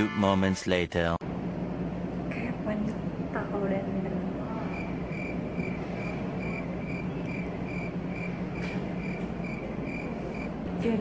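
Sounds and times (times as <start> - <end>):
steady low hum: 0.0 - 11.0
cricket chirping: 4.7 - 10.6.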